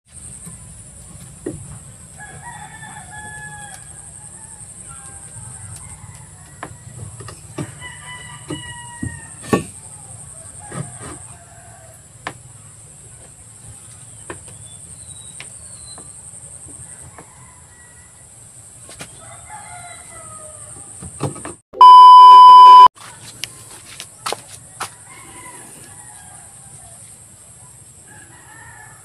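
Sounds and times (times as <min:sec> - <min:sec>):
rooster crowing: 0:02.2 - 0:09.4, 0:19.2 - 0:20.8, 0:28.1 - 0:29.0
test-tone beep: 0:21.8 - 0:22.9.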